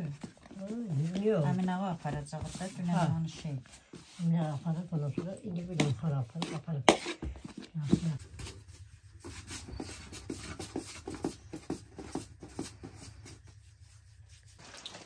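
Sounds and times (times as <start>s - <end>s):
hands patting dough: 0.0s - 7.2s
hands rubbing flour on metal tray: 0.6s - 7.2s.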